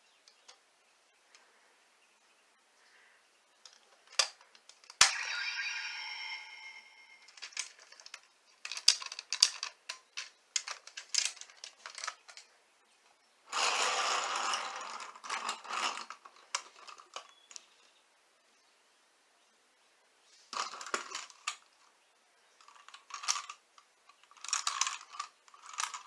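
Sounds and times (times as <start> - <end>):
plastic toy parts clicking: 3.6 - 5.1, 7.3 - 12.5, 22.6 - 26.0
electronic toy sound effect: 5.0 - 7.6.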